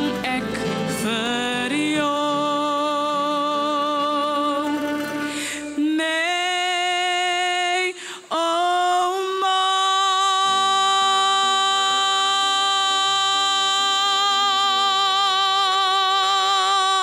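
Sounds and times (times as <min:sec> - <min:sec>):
boy singing with vibrato: 0:00.0 - 0:17.0
choir voices: 0:09.0 - 0:17.0.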